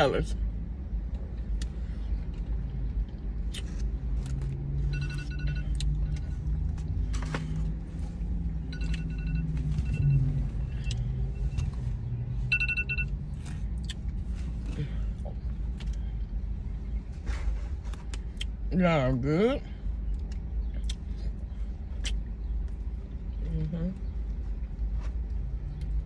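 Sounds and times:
low rumble inside car: 0.0s - 26.0s
faint electronic beeps: 4.9s - 5.9s, 8.6s - 13.2s.

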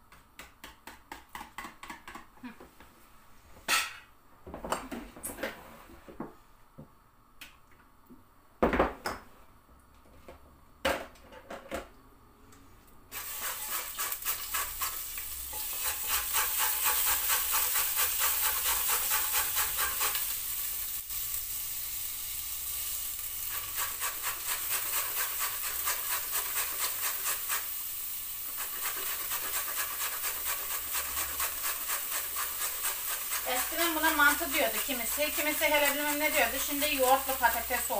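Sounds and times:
knocks on kitchen counter: 8.6s - 9.2s
carrot grated on metal grater: 28.6s - 37.4s.

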